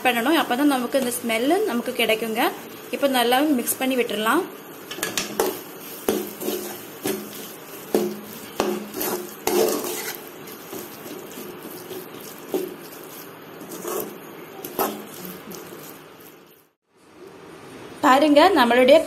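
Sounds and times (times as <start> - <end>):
metal spatula scraping metal pot: 4.9 - 16.3.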